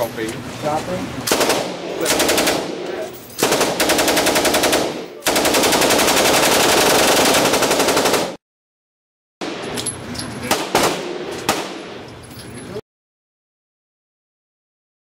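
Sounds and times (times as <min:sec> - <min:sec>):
machine gun automatic bursts: 0:01.3 - 0:02.8, 0:03.4 - 0:08.4, 0:10.5 - 0:11.8
single gunshots: 0:10.5 - 0:12.0.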